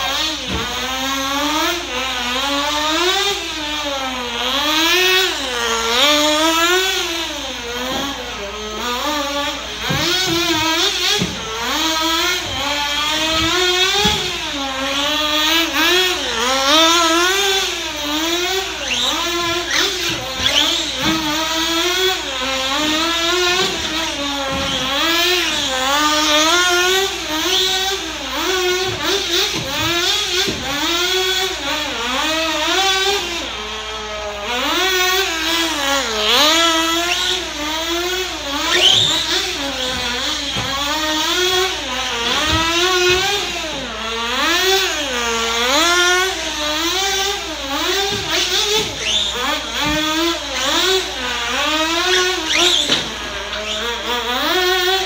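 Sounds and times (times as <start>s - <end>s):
rc buggy engine whining: 0.0s - 55.0s.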